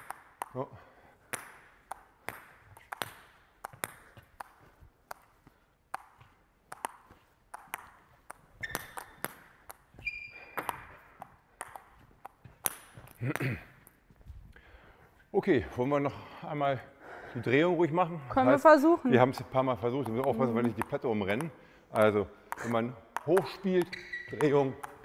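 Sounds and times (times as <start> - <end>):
table tennis ball clicking: 1.3 - 13.2, 19.2 - 25.0
short squeaks: 10.0 - 10.6, 23.8 - 24.8.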